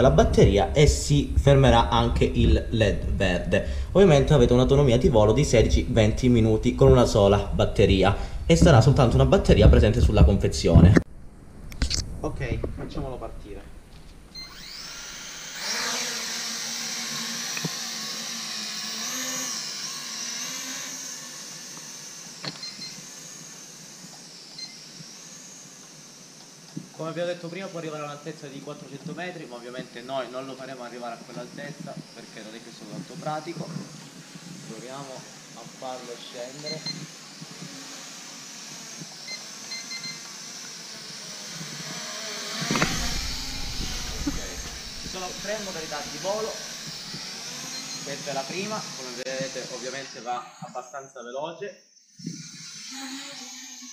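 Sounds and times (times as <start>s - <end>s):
drone propellers whining: 0.0s - 11.0s, 13.1s - 53.9s
short electronic beeps: 39.3s - 40.2s
low rumble: 42.9s - 46.2s.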